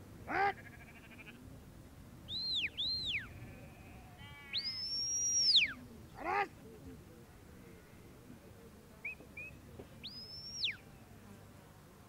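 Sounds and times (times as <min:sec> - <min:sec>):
sheep bleating: 0:00.3 - 0:01.4, 0:03.2 - 0:04.8
shepherd's whistle commands: 0:02.3 - 0:03.3, 0:04.5 - 0:05.7, 0:09.0 - 0:10.8.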